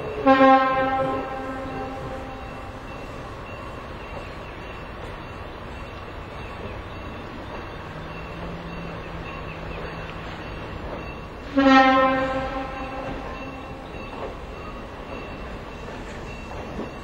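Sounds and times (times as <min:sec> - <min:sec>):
train horn blast: 0:00.0 - 0:02.7, 0:11.4 - 0:13.9
train rumbling: 0:00.0 - 0:17.0.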